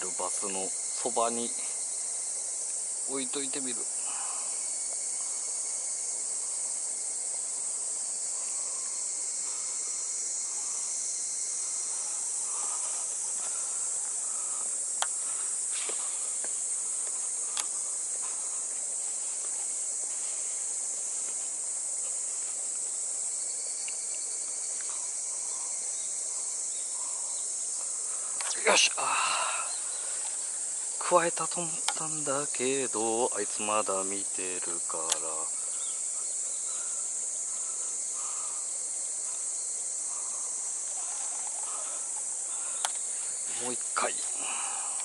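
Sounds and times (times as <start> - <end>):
insects chirring: 0.0 - 45.0.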